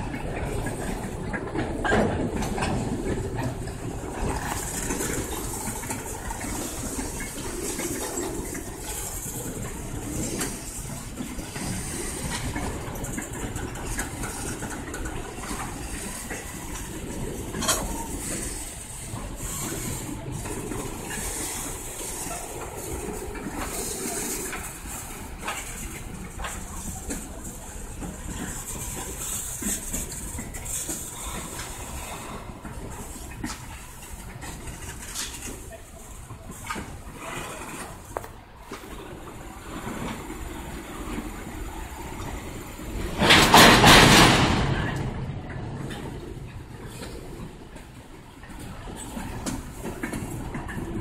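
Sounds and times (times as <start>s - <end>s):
freight train wheels rumbling: 0.0s - 51.0s.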